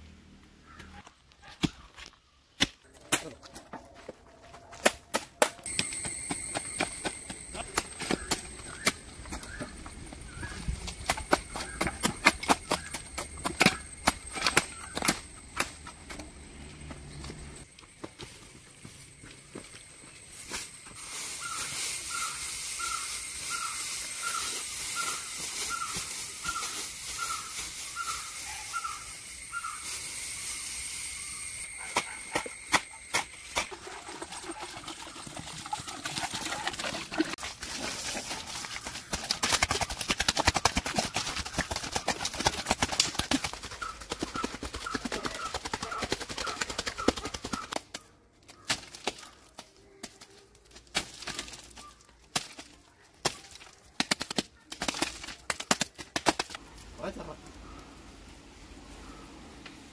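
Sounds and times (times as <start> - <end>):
hands scraping straw and mud: 20.3 - 47.8.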